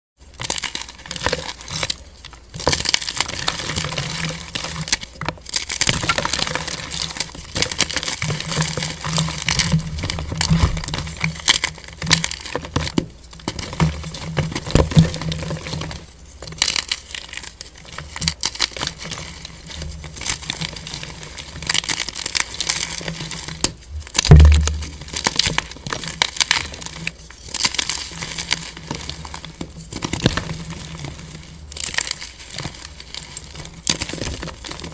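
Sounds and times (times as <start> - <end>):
chalk crunching and crackling: 0.2 - 34.9
loud thump: 24.2 - 25.0.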